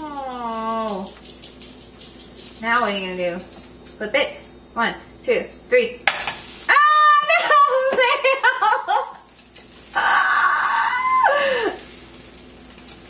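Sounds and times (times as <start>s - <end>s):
woman shrieking: 10.0s - 11.8s.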